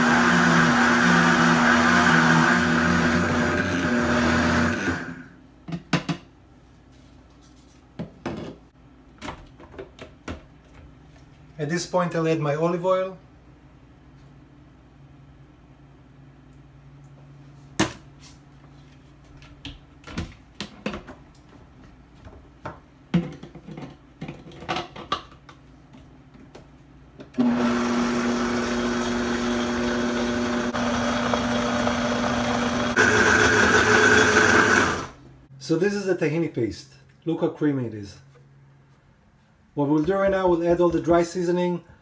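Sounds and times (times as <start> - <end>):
blender motor grinding: 0.0 - 5.3, 27.4 - 35.2.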